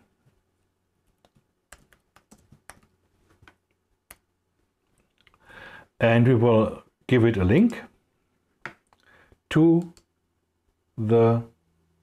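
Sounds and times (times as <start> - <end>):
keyboard typing: 1.1 - 4.2.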